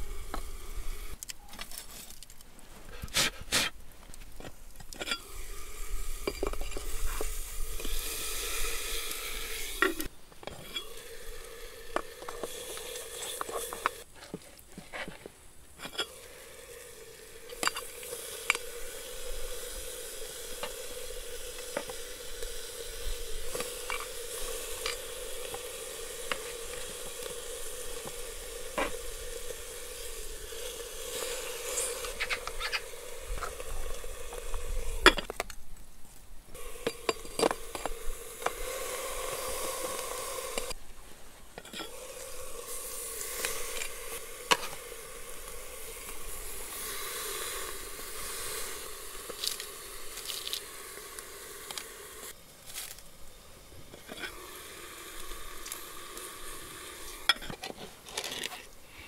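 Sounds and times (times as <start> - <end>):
meat sizzling: 5.2 - 14.0, 16.0 - 35.2, 36.5 - 40.8, 41.9 - 53.6, 54.2 - 57.4.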